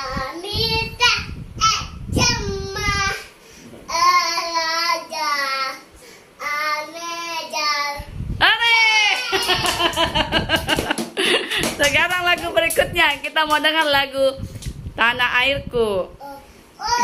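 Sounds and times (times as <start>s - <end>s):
child singing: 0.0s - 3.3s, 3.9s - 8.1s.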